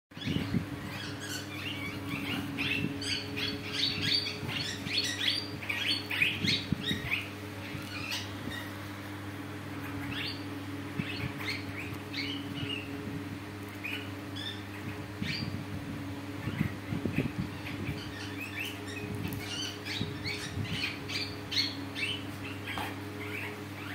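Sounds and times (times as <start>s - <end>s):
parakeets chirping: 0.1s - 23.9s
steady low hum: 0.1s - 23.9s
birds pecking pea pods: 18.1s - 23.9s.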